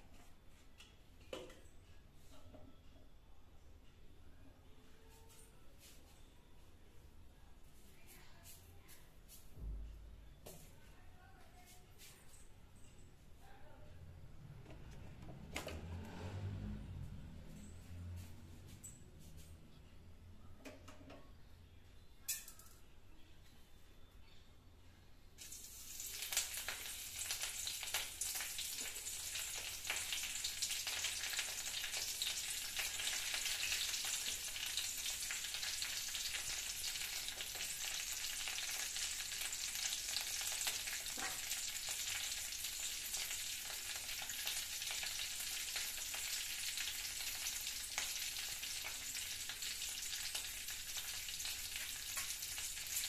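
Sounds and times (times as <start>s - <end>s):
seeds sizzling and popping in oil: 25.4s - 53.0s.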